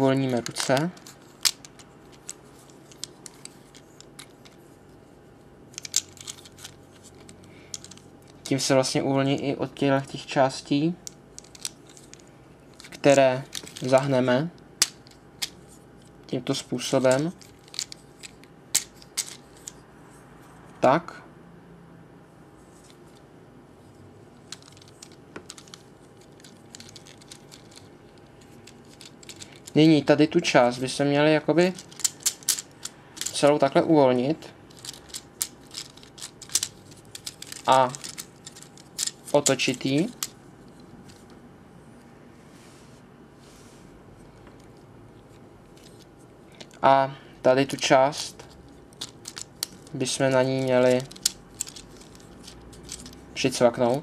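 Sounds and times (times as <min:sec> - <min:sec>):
plastic toy parts clicking: 0:00.3 - 0:04.6, 0:05.7 - 0:08.5, 0:11.0 - 0:14.0, 0:17.0 - 0:19.8, 0:24.4 - 0:29.8, 0:31.7 - 0:33.5, 0:34.7 - 0:40.4, 0:48.4 - 0:54.0.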